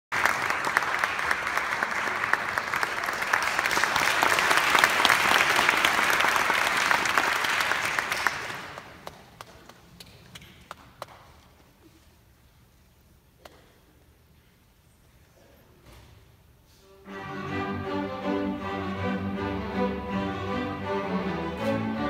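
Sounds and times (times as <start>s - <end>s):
audience applauding: 0.1s - 10.0s.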